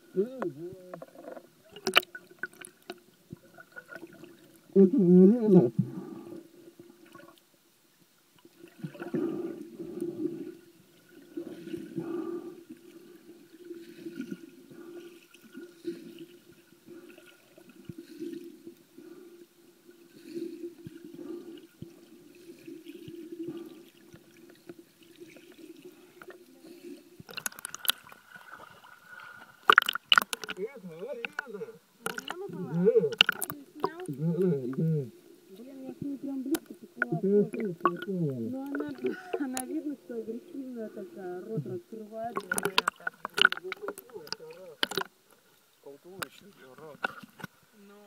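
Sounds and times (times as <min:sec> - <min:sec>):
muffled underwater sloshing: 0:00.0 - 0:47.7.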